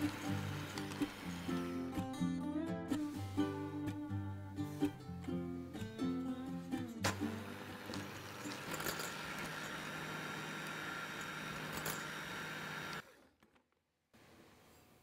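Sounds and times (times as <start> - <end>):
electric hand mixer whirring: 0.0 - 1.8, 7.1 - 13.1.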